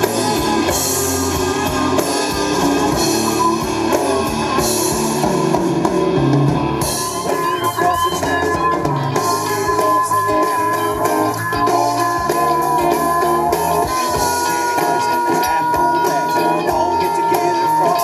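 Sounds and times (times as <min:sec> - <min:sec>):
live band with electric guitars: 0:00.0 - 0:18.0
long held high note: 0:06.9 - 0:18.0.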